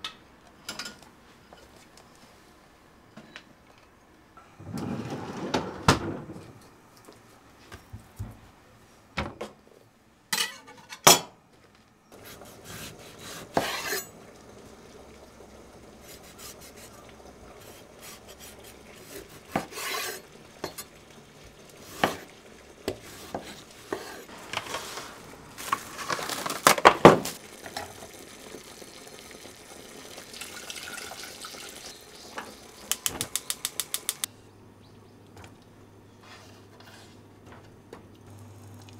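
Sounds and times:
dishes and utensils clinking: 10.3s - 11.3s
quick clicks: 32.9s - 34.3s.

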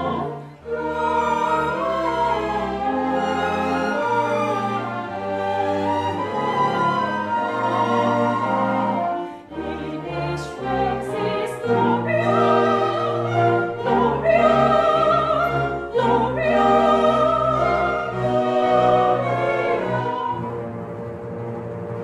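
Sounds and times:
soprano singing: 0.0s - 20.6s
chamber orchestra strings: 0.0s - 22.0s.

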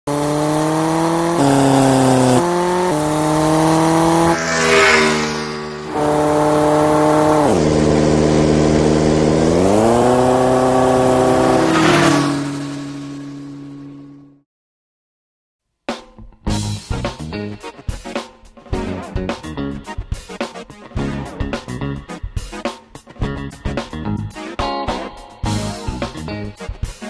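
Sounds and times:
motorcycle engine revving: 0.1s - 14.4s
whooshes: 4.0s - 6.7s.

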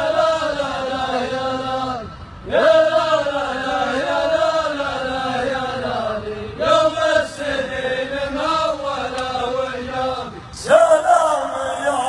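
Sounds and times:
men chanting verse: 0.0s - 12.0s.

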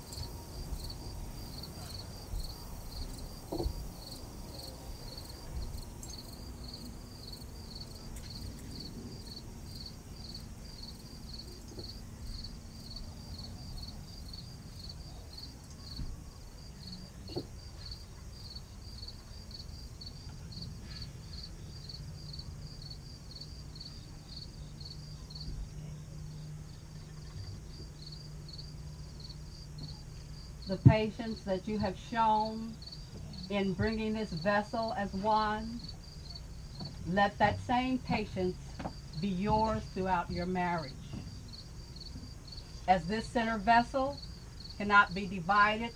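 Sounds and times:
insect chirping: 0.0s - 30.7s, 32.4s - 33.5s, 41.3s - 42.9s, 44.1s - 44.8s
faint low hum: 0.0s - 45.9s
outdoor background noise: 0.0s - 45.9s.

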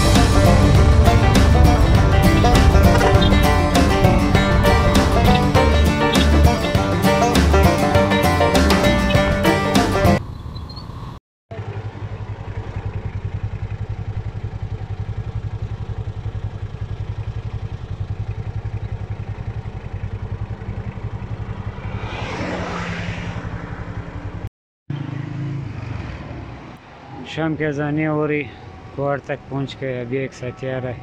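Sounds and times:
rushing noise: 0.0s - 7.6s, 21.2s - 24.4s
motorcycle engine throbbing: 0.0s - 24.4s.

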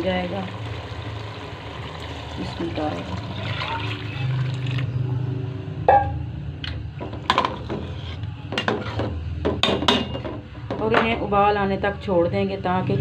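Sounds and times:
water pouring into metal pot: 0.0s - 4.9s.

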